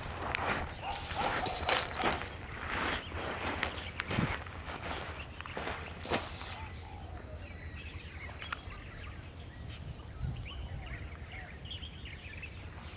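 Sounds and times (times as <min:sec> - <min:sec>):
footsteps crunching on dry ground: 0:00.0 - 0:06.7
birds chirping: 0:00.0 - 0:12.9.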